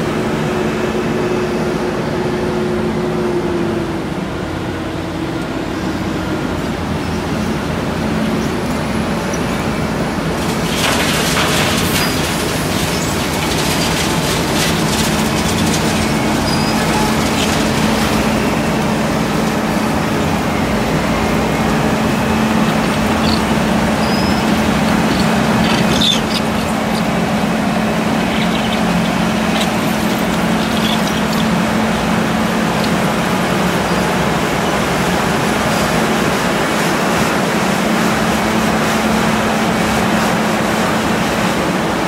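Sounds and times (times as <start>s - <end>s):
scattered crackles: 10.4s - 18.6s, 22.1s - 33.2s
milling machine din: 10.4s - 34.2s
steady machine hum: 11.8s - 40.5s.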